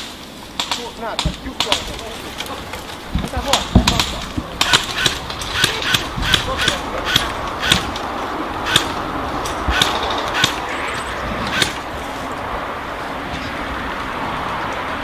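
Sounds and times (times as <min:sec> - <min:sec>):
airsoft guns firing: 0:00.0 - 0:02.2, 0:03.3 - 0:08.0, 0:08.7 - 0:09.0, 0:09.7 - 0:10.7.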